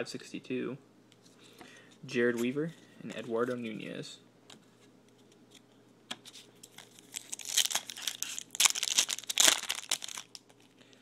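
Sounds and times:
foil wrapper tearing and crinkling: 0:06.6 - 0:10.7.

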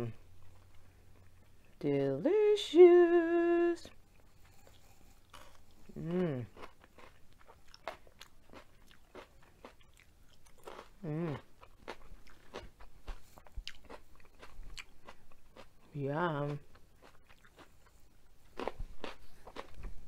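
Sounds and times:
person humming mmm: 0:02.2 - 0:04.0, 0:05.8 - 0:06.6, 0:11.0 - 0:11.5
crunching bell pepper: 0:04.5 - 0:15.8, 0:16.5 - 0:20.0.

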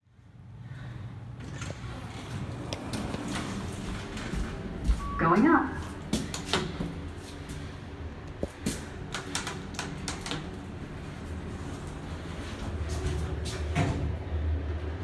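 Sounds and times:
low elevator hum: 0:00.0 - 0:15.0
elevator button clicking: 0:09.1 - 0:10.6.

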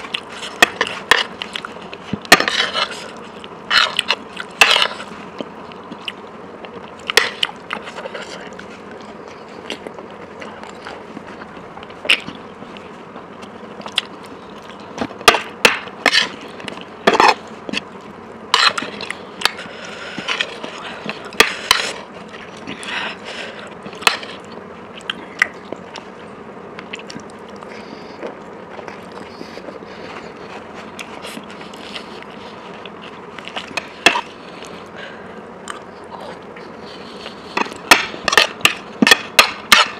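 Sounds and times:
mouth clicks and chewing smacks: 0:23.8 - 0:26.1, 0:26.8 - 0:29.8, 0:35.6 - 0:35.9.

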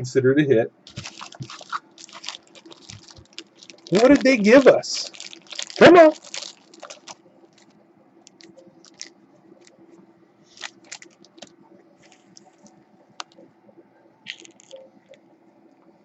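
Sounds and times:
faint steady hum: 0:00.0 - 0:16.0
plastic wrap crinkling: 0:00.9 - 0:09.8, 0:10.5 - 0:13.4, 0:14.3 - 0:14.9.

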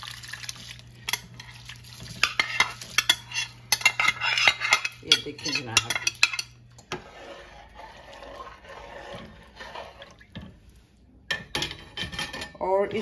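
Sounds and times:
water boiling in a pot: 0:00.0 - 0:05.0, 0:05.6 - 0:10.7.

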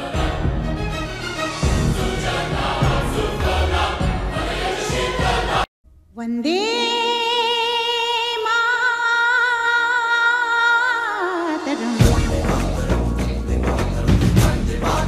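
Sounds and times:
faint low drone: 0:12.0 - 0:14.0.

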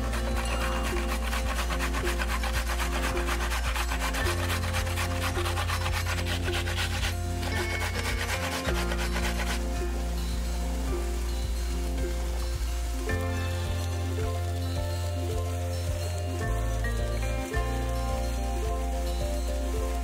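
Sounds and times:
vegetable rasping on a hand grater: 0:00.0 - 0:10.4.

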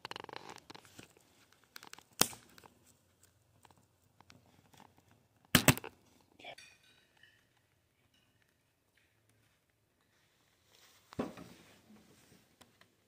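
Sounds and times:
sharp loud snaps: 0:05.5 - 0:05.9.

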